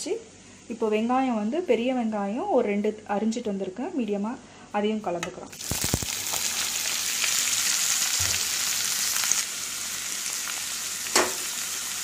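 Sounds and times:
onions sizzling in hot oil: 5.5 - 12.0.

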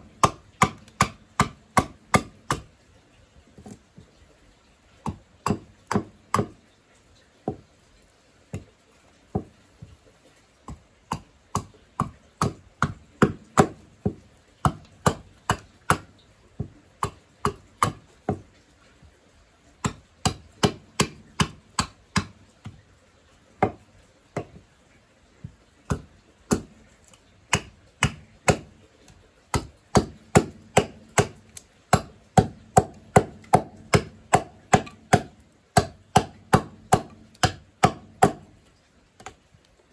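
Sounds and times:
axe chopping wood: 0.0 - 2.7, 5.0 - 6.6, 9.3 - 9.6, 10.7 - 18.4, 19.8 - 22.8, 23.6 - 23.8, 25.4 - 28.9, 29.5 - 38.6.

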